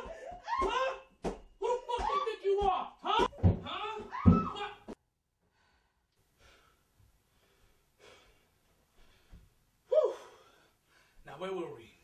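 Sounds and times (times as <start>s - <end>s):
person breathing hard: 5.4s - 11.2s.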